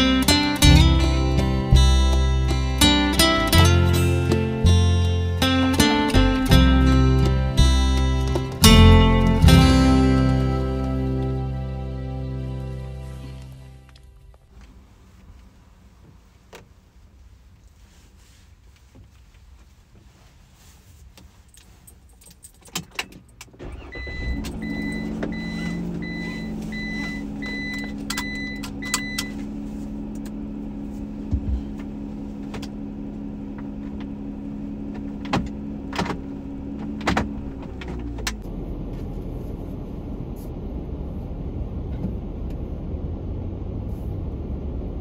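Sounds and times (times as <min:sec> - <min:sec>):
van engine starting and idling: 0:00.0 - 0:45.0
keys jangling: 0:21.6 - 0:23.4
dashboard warning chime beeping: 0:23.6 - 0:29.6
clicks in vehicle cab: 0:24.3 - 0:29.5, 0:31.2 - 0:32.8, 0:33.5 - 0:34.2, 0:34.8 - 0:38.4.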